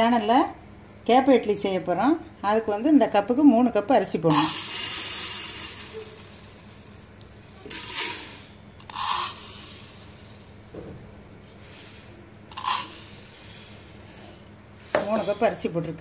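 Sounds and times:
rice grains pouring into pot: 0:04.3 - 0:15.4.

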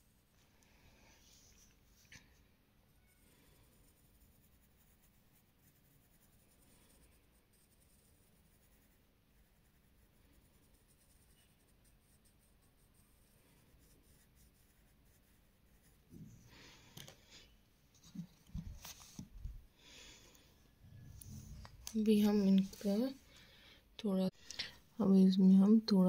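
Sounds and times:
pencil scratching on paper: 0:03.0 - 0:16.4.

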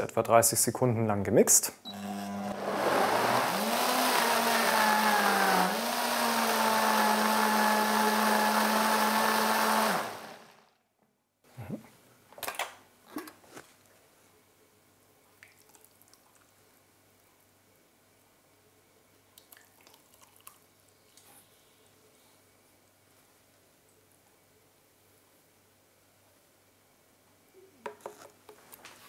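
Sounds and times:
blender motor running: 0:01.9 - 0:10.6.

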